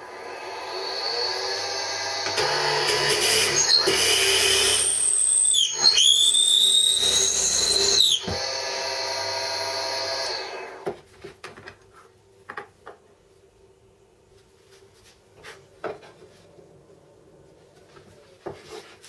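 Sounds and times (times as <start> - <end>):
drill press motor hum: 0.1 - 5.1, 7.0 - 10.8
drill bit boring into wood: 0.8 - 10.7.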